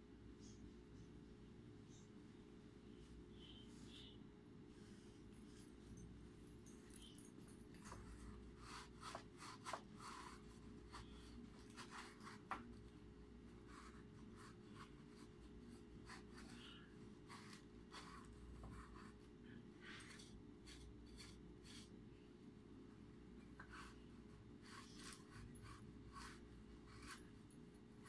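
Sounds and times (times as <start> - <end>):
rustling and scraping of wires: 6.9 - 22.0, 23.4 - 28.0.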